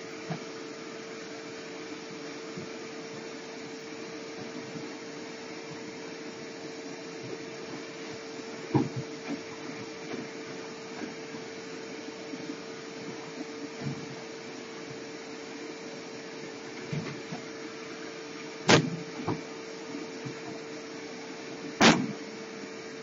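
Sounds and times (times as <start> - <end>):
machine hum and hiss: 0.0 - 23.0
sharp knocks: 21.8 - 22.2.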